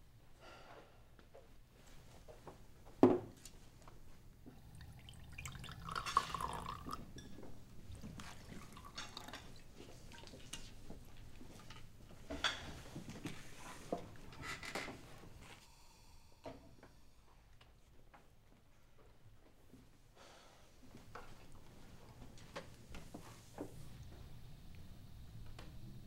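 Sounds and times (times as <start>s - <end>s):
liquid pouring into glass: 4.5s - 10.5s.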